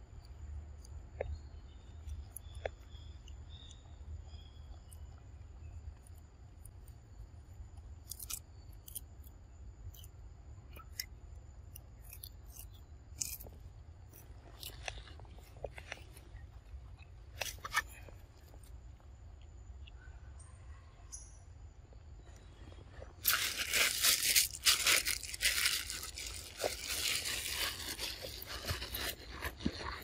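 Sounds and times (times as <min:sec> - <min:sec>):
monkey crunching lettuce: 0:08.0 - 0:09.0, 0:12.0 - 0:18.0, 0:23.2 - 0:30.0.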